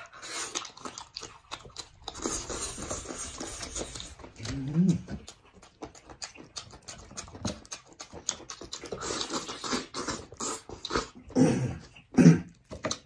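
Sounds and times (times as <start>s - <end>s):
lip smacks and chewing: 0.0s - 13.0s
sucking and slurping: 0.0s - 13.0s
throaty noises: 0.0s - 13.0s.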